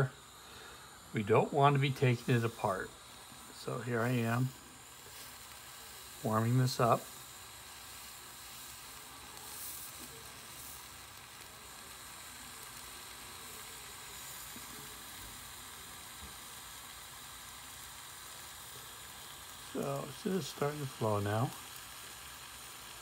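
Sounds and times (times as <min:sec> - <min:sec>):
small torch hissing: 0:00.0 - 0:23.0.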